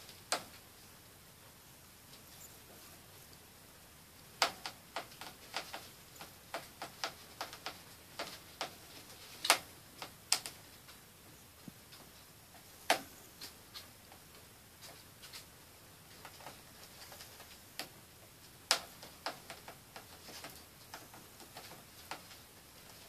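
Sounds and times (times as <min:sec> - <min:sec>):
rats clicking in wire cage: 0:00.3 - 0:00.6, 0:04.4 - 0:10.6, 0:16.1 - 0:23.0.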